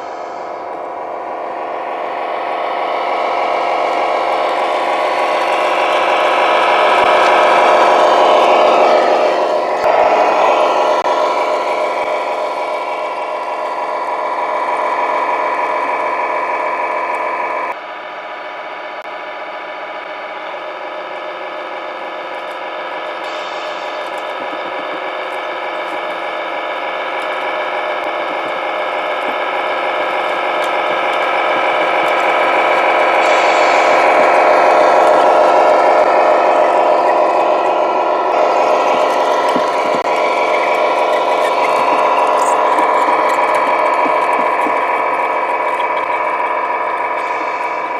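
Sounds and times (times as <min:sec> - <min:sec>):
simulated truck engine from speaker: 0:00.0 - 0:47.9.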